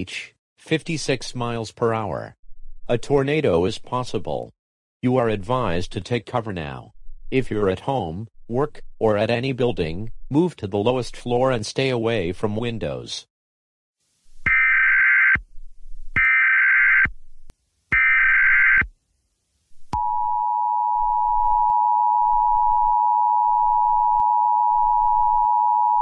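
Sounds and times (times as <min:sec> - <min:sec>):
data-burst screeches: 0:14.5 - 0:15.4, 0:16.2 - 0:17.1, 0:17.9 - 0:18.9
two-tone attention alarm: 0:14.5 - 0:15.4, 0:16.2 - 0:17.1, 0:18.0 - 0:18.9.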